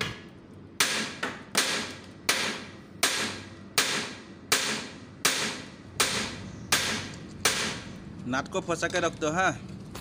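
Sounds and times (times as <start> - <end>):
hammer striking steel: 0.8 - 7.9.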